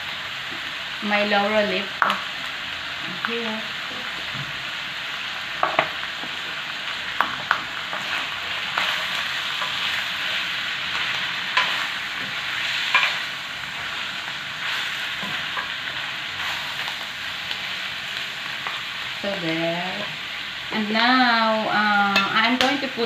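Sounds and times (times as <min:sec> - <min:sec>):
meat sizzling in a frying pan: 0:00.0 - 0:23.0
spatula scraping a pan: 0:07.9 - 0:13.3.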